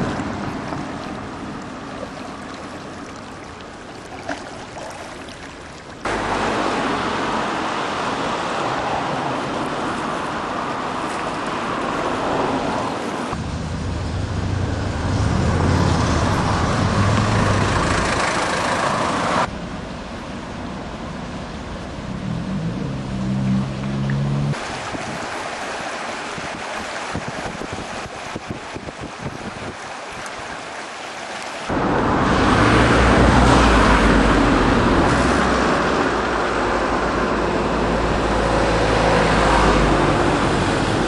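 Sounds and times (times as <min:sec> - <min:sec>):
rushing floodwater: 0:00.0 - 0:41.0
low engine hum: 0:12.1 - 0:25.1, 0:31.7 - 0:41.0
wind noise on microphone: 0:22.1 - 0:30.6.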